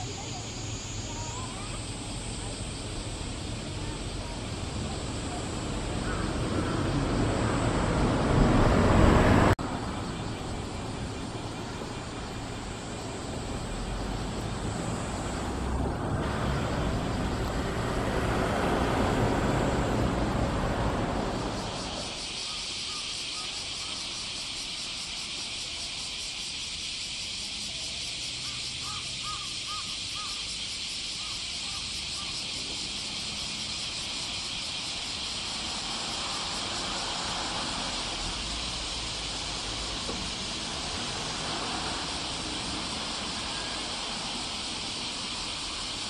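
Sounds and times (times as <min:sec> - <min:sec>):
cicadas chorus high hiss: 0:00.0 - 0:46.0
bird calling: 0:03.6 - 0:07.6, 0:21.5 - 0:24.2, 0:28.4 - 0:32.6.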